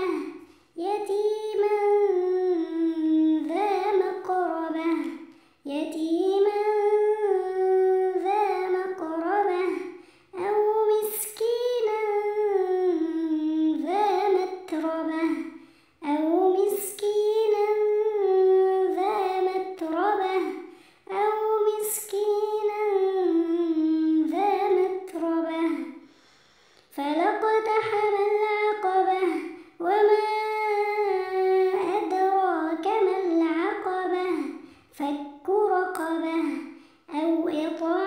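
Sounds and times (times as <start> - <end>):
child chanting melodic recitation: 0.0 - 26.1, 27.0 - 38.0.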